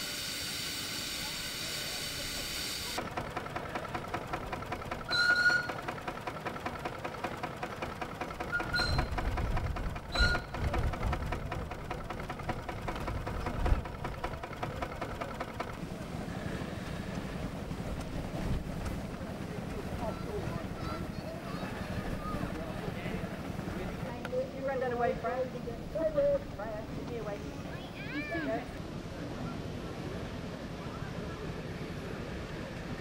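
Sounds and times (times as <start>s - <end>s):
steam hissing: 0.0s - 3.0s
steam engine rhythmic chuffing: 0.0s - 27.4s
steam whistle toots: 5.1s - 5.8s.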